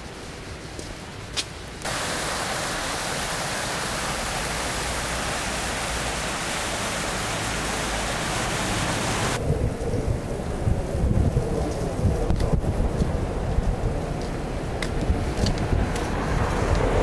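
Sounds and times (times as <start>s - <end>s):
stream rushing in channel: 1.8s - 9.4s.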